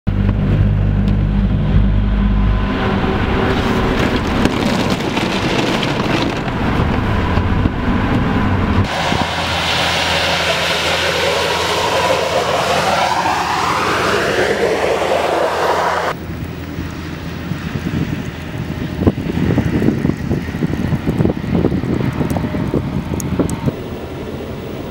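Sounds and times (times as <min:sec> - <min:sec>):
snowplow truck passing: 0:00.1 - 0:24.9
vehicle engine and tyres droning: 0:00.1 - 0:24.9.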